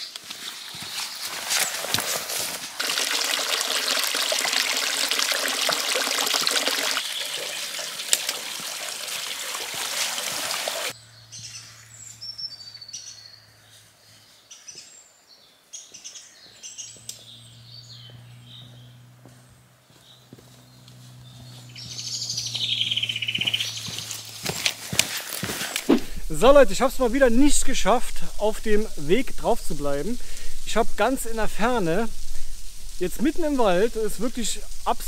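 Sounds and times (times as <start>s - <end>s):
water pouring into trough: 2.7s - 10.9s
small birds chirping: 6.8s - 7.9s, 10.9s - 25.5s
low steady hum: 25.8s - 35.0s.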